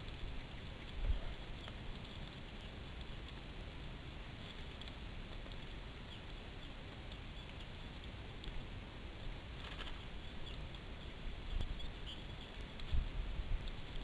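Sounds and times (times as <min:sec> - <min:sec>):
outdoor hiss and rumble: 0:00.0 - 0:14.0
bird rustling on twig nest: 0:09.4 - 0:10.2.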